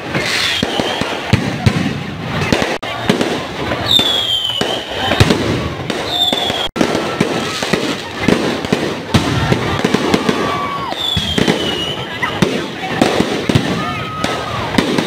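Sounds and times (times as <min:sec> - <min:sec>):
falling firework whistle: 0:00.0 - 0:01.8, 0:03.7 - 0:08.0, 0:09.2 - 0:12.4
firework bangs and crackles: 0:00.0 - 0:15.0.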